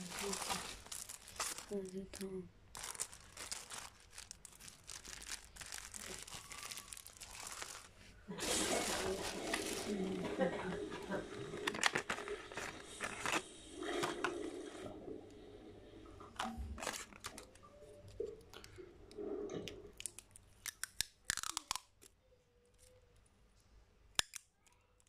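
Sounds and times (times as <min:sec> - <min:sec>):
plastic packaging crinkling: 0:00.0 - 0:14.5, 0:16.4 - 0:18.7.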